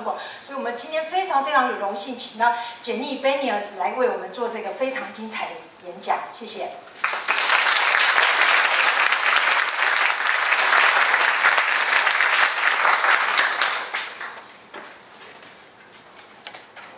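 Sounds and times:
audience clapping: 0:07.0 - 0:14.6.

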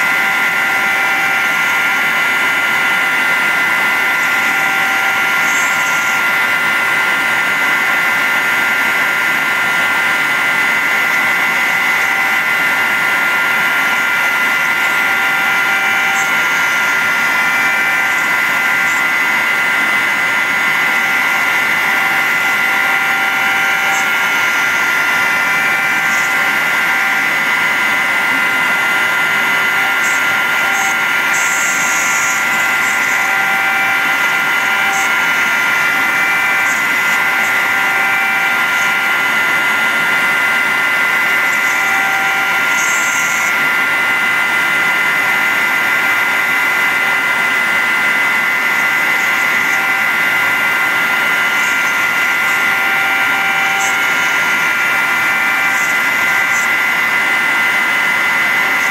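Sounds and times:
cnc router spindle whine: 0:00.0 - 0:58.9.

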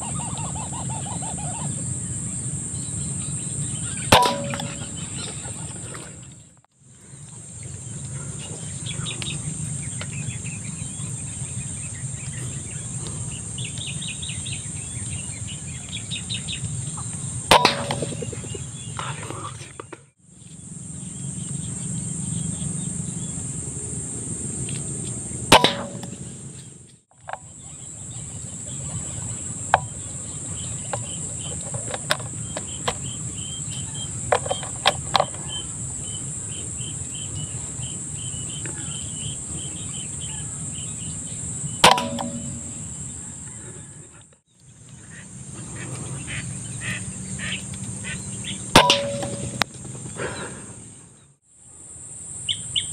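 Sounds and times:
high-pitched insect chorus: 0:00.0 - 0:52.9
air rifle shots: 0:17.5 - 0:18.5, 0:25.5 - 0:26.3, 0:41.8 - 0:42.8.

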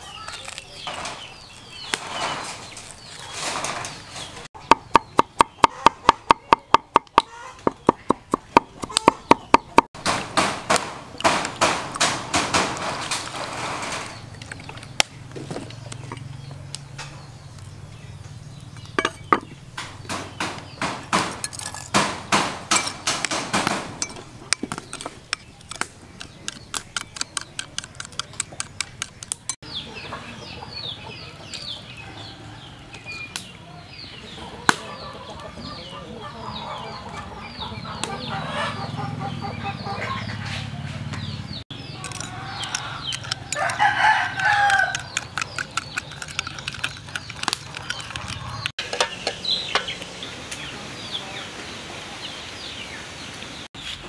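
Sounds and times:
cleaver chopping on wooden board: 0:04.7 - 0:12.8, 0:19.1 - 0:23.9.

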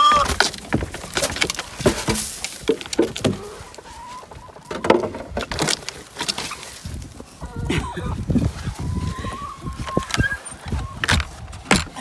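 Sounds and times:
coop knocking and rattling: 0:00.0 - 0:06.4, 0:09.9 - 0:12.0
hens clucking: 0:02.7 - 0:05.4.

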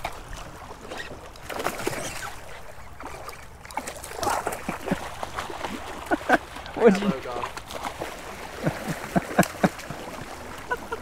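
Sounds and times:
fish splashing in water: 0:00.0 - 0:11.0.

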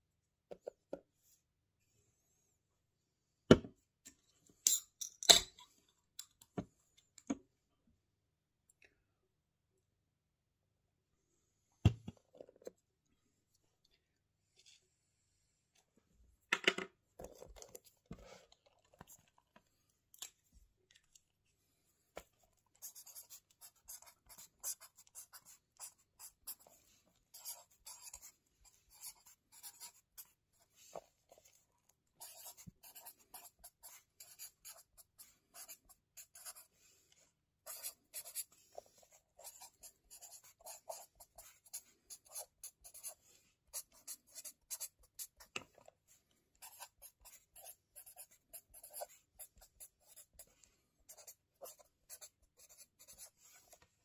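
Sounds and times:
scratchy pen strokes on paper: 0:32.2 - 0:45.5, 0:46.6 - 0:53.8.

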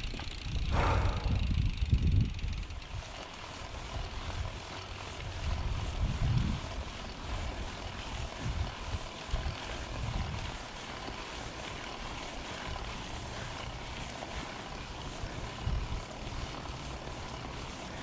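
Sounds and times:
bike tyres rolling on dirt: 0:00.0 - 0:18.0
wind rushing over microphone: 0:00.5 - 0:03.1, 0:05.2 - 0:06.9, 0:08.2 - 0:10.6.

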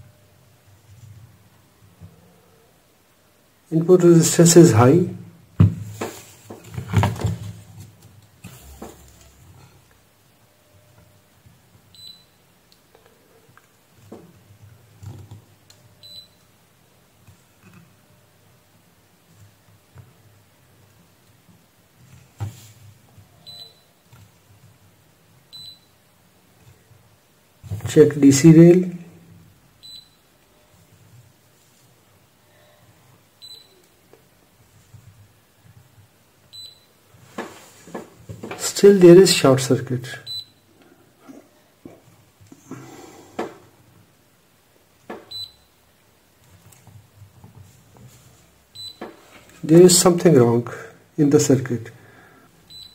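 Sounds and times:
multimeter short high beeps: 0:23.5 - 0:23.9.

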